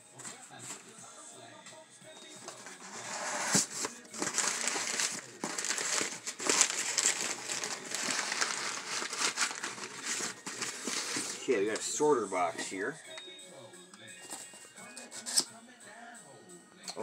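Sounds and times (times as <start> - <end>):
packing paper rustling: 2.2 - 12.8.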